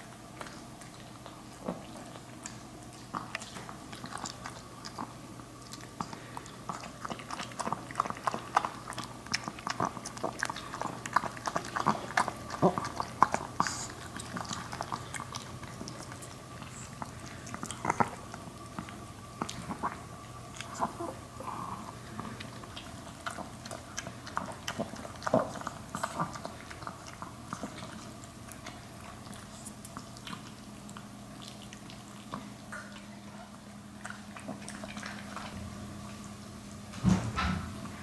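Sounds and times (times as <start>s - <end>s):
dog lapping from metal bowl: 6.1s - 20.1s, 31.4s - 35.6s.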